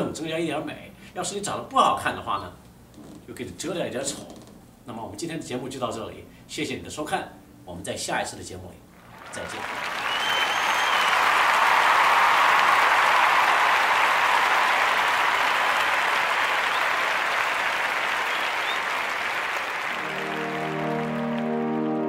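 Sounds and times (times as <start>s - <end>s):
audience applause: 9.0s - 22.0s
low held musical chord: 20.0s - 22.0s.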